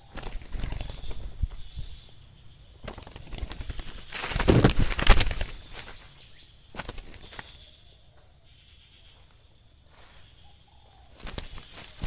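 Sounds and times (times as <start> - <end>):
dove wings flapping: 0.0 - 1.9, 2.8 - 6.0, 6.7 - 7.6, 11.1 - 12.0.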